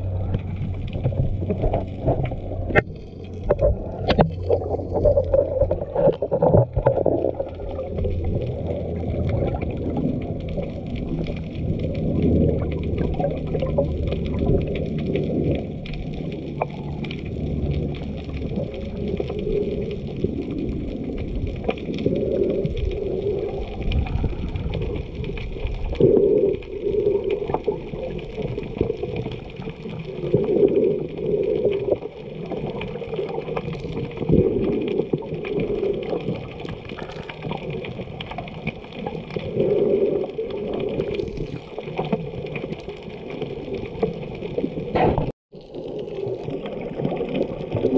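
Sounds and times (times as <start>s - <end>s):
muffled water sloshing: 0.0s - 47.9s.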